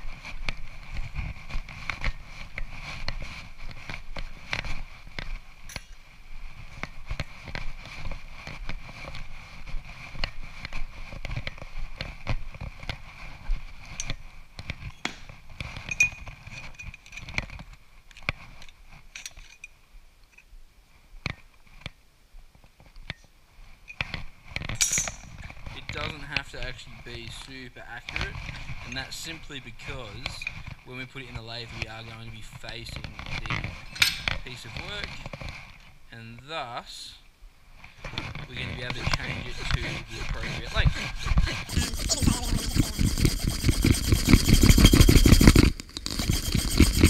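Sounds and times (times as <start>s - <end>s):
hand tools and metal clattering: 5.7s - 6.0s, 14.8s - 17.6s, 18.6s - 20.5s, 23.9s - 29.3s, 31.8s - 35.5s, 38.0s - 47.0s
footsteps: 37.8s - 47.0s.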